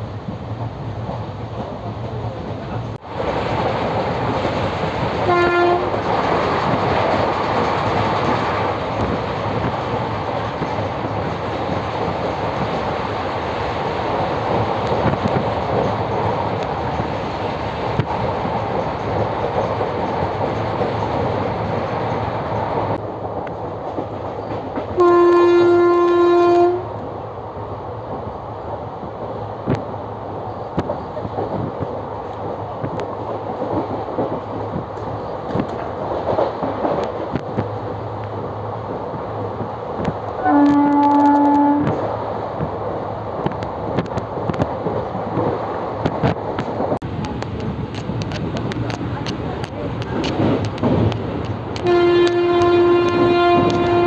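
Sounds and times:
train wheels on rails: 0.0s - 54.0s
train horn blasts: 5.2s - 6.0s, 25.0s - 26.9s, 40.4s - 41.9s, 51.8s - 54.0s.

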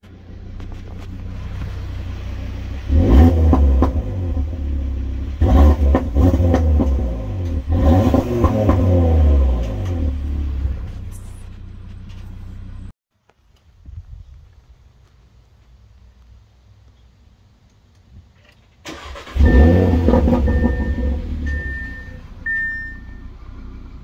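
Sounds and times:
car engine revving: 0.1s - 12.9s, 18.9s - 24.0s.

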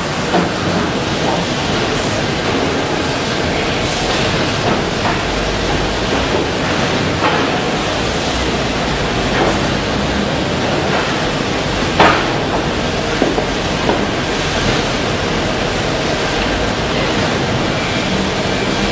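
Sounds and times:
factory hiss: 0.0s - 18.9s.

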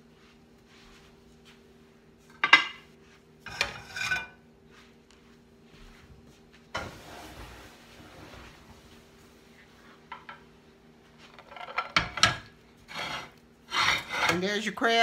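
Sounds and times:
faint steady hum: 0.0s - 15.0s
scraping clatter of cookware: 3.5s - 4.4s, 11.3s - 14.5s.

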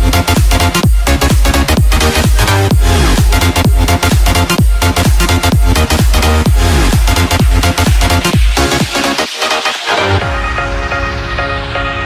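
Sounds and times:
kick drum beat: 0.0s - 9.1s
synth chords: 0.0s - 12.0s.

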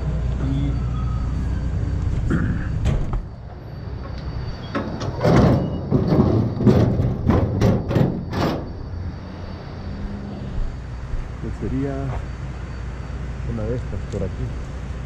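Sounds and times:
low engine hum: 0.0s - 15.0s
harsh scraping and rustling: 2.1s - 9.1s.

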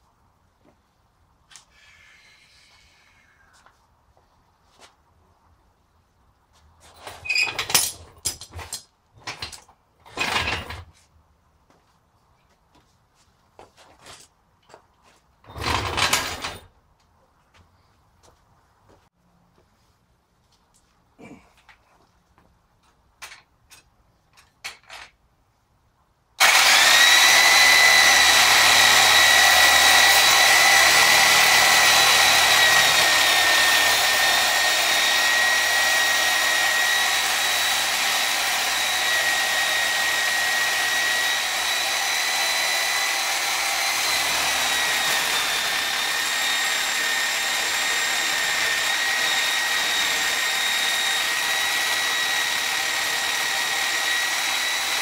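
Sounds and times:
electric drill whining: 26.4s - 55.0s.

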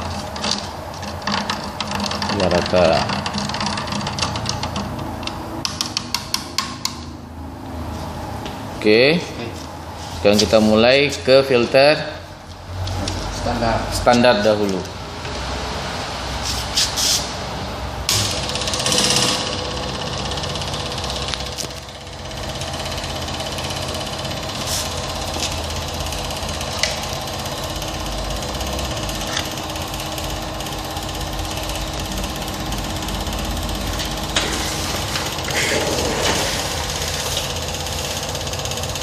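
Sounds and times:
small electric pump running: 18.1s - 39.0s.

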